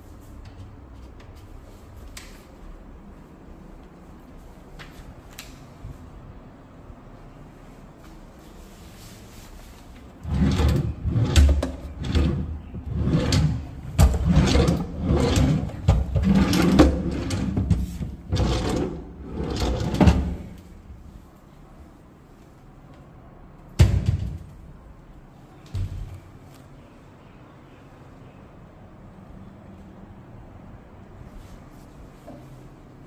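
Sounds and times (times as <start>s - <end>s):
wooden drawers sliding: 10.2s - 20.7s.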